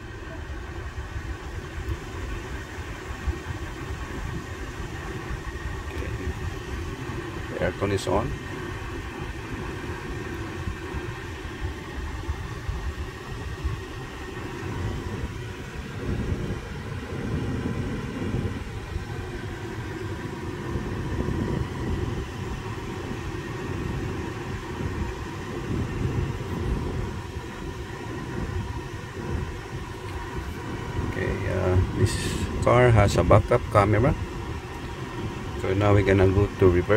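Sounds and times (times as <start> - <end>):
air conditioning blower rushing: 0.0 - 36.9.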